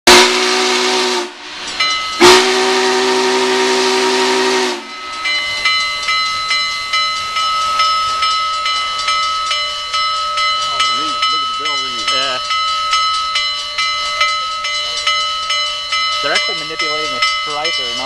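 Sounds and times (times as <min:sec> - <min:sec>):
steam whistle blowing: 0:00.1 - 0:05.1
steam hissing: 0:00.1 - 0:18.0
locomotive bell ringing: 0:01.0 - 0:18.0.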